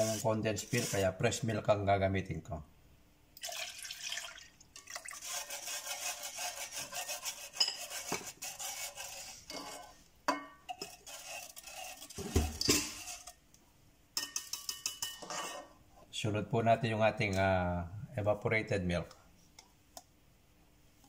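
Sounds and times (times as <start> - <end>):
whisk scraping and clinking pot: 0.0 - 1.4, 5.0 - 13.4, 14.2 - 15.8.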